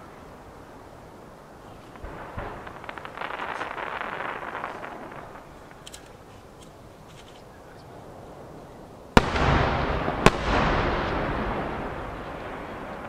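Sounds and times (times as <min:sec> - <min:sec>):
firework crackles: 0:00.0 - 0:13.0
rolling rumble: 0:01.5 - 0:13.0
firework booms: 0:01.9 - 0:05.8, 0:08.0 - 0:13.0.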